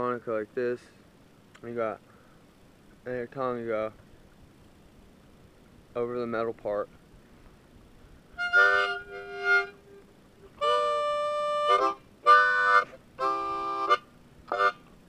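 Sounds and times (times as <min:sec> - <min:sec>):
harmonica chords and notes: 0:08.4 - 0:14.9.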